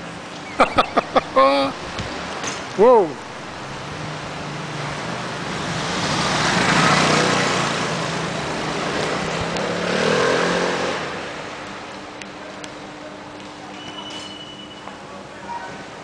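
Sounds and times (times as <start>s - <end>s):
motor scooter engine passing: 5.1s - 11.1s.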